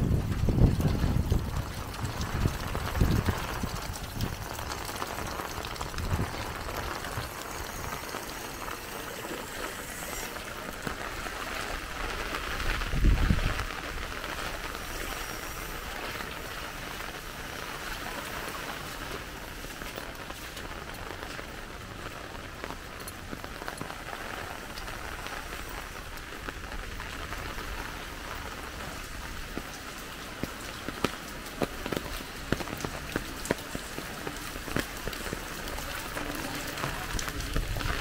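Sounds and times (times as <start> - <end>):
heavy rain hissing: 0.0 - 38.0.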